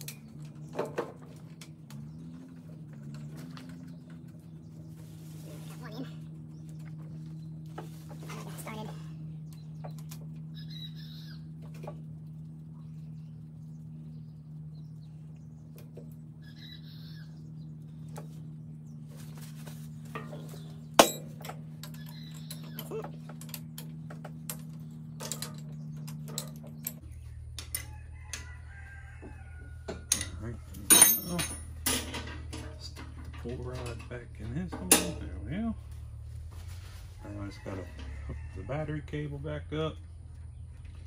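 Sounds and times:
steady low hum: 0.0 - 41.0
hand tools clicking and clinking: 20.1 - 27.0, 30.1 - 34.2.

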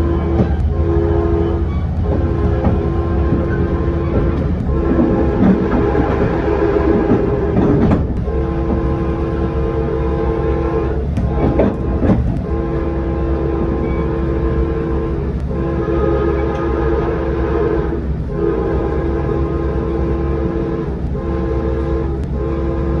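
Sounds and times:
wheel clicks over rail joints: 0.0 - 16.8
train air horn blasts: 0.0 - 23.0
train rolling rumble: 0.0 - 23.0.

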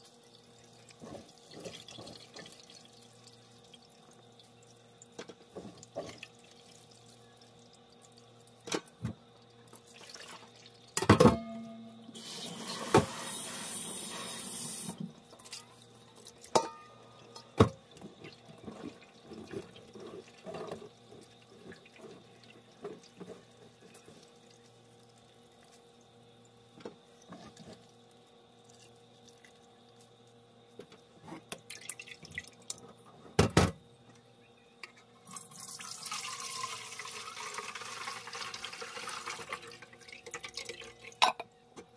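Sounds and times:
metal clunking on steel sink: 11.0 - 11.8, 16.5 - 17.8.

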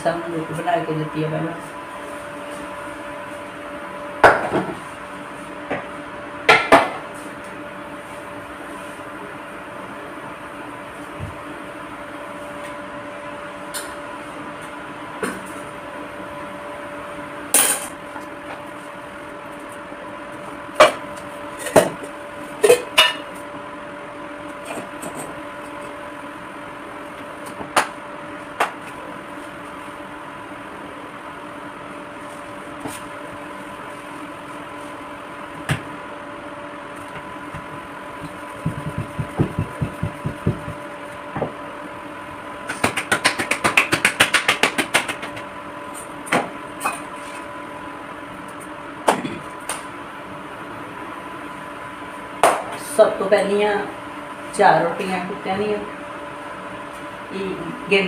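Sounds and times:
electric appliance hum: 0.0 - 58.0
hands patting dough: 37.5 - 41.0, 42.6 - 45.5.

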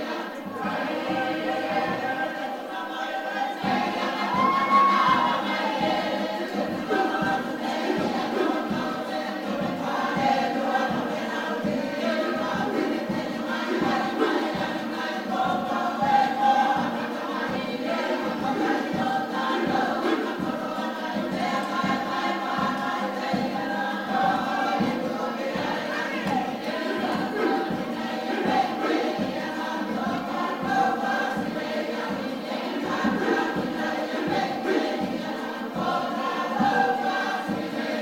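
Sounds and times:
group singing in harmony: 0.0 - 38.0.

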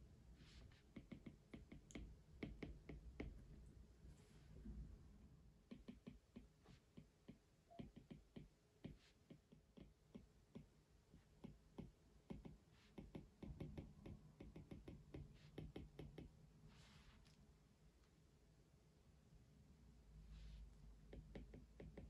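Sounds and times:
faint low hum: 0.0 - 22.0
tapping and clicking at desk: 0.9 - 3.4, 5.6 - 10.7, 11.4 - 16.3, 21.1 - 22.0.

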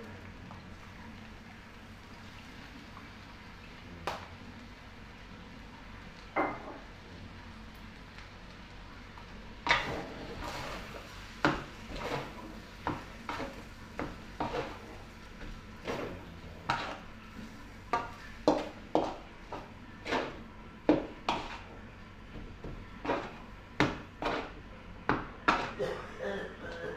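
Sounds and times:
metal spatula scraping wok: 14.4 - 15.0, 20.0 - 20.4, 24.2 - 24.6.

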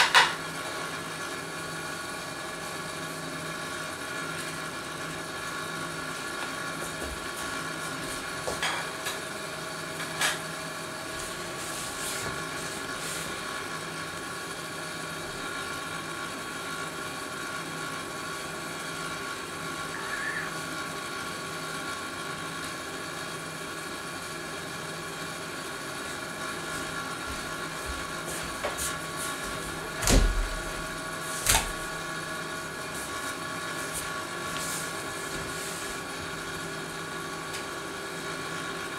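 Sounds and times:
machine hum with held tones: 17.9 - 22.1.

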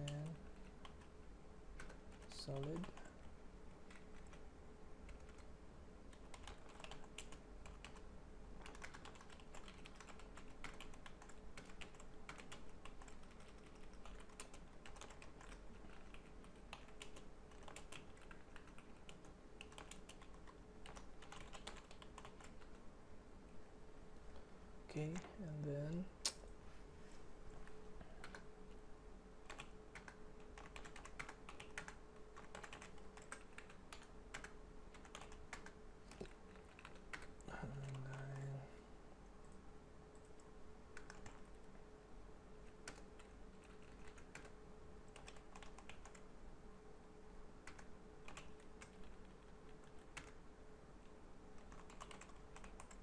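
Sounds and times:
faint steady hum: 0.0 - 53.0
typing on computer keyboard: 5.1 - 5.5, 6.1 - 22.8, 29.4 - 38.2, 40.2 - 41.5, 42.8 - 46.2, 47.6 - 50.4, 51.6 - 53.0.

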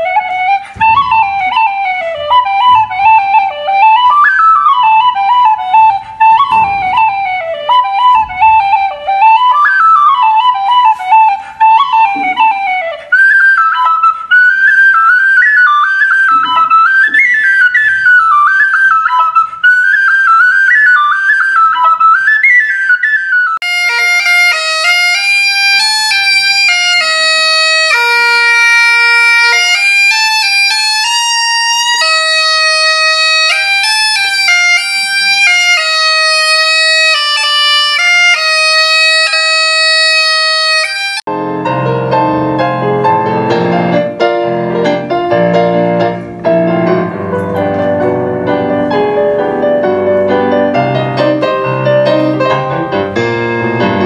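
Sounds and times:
bagpipes playing: 0.0 - 19.5, 23.6 - 41.3
tin whistle melody: 0.0 - 54.0.

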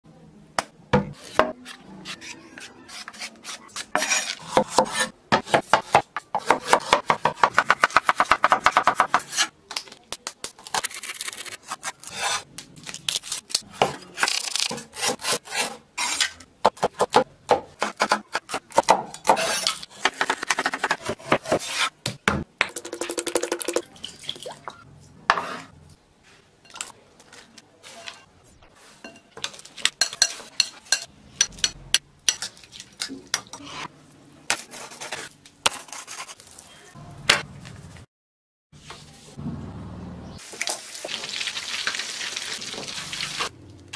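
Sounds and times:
blade scraping board: 1.2 - 5.1.

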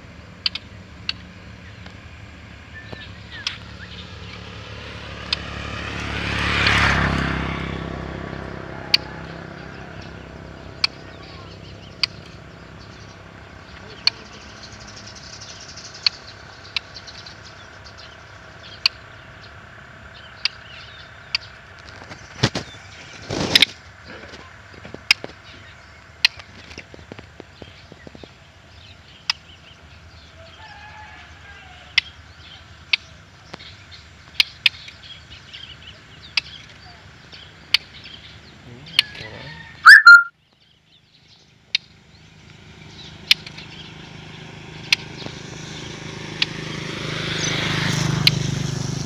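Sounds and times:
wing flutters: 21.8 - 25.4.

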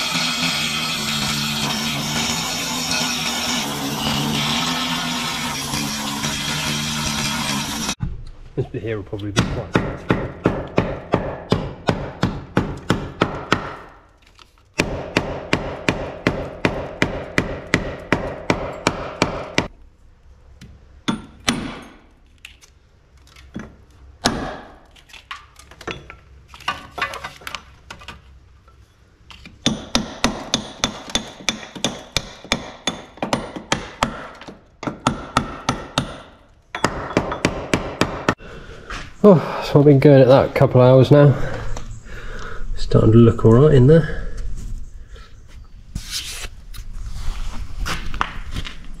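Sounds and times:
hammer striking rusty steel: 9.4 - 13.9, 14.8 - 19.7, 21.0 - 22.1, 29.6 - 38.4.

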